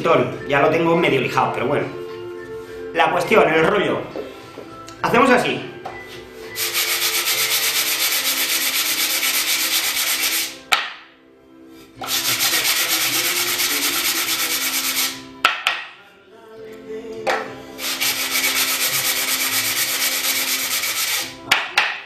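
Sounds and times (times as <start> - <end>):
sandpaper rasping on wood: 6.6 - 10.6, 12.0 - 15.2, 17.8 - 21.4.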